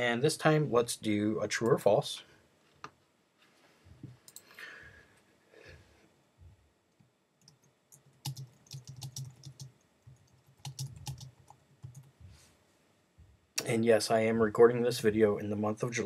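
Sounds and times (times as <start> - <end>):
typing on a keyboard: 7.4 - 12.1.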